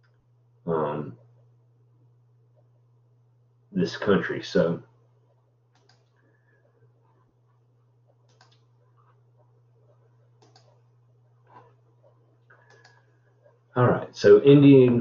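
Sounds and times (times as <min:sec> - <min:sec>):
steady low hum: 0:00.0 - 0:15.0
faint computer mouse clicks: 0:05.7 - 0:06.2, 0:08.1 - 0:08.7, 0:10.4 - 0:10.8, 0:12.5 - 0:13.0.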